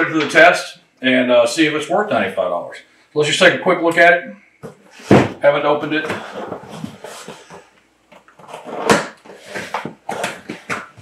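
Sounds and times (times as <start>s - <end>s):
sharp knocks and thumps: 4.6s - 5.4s.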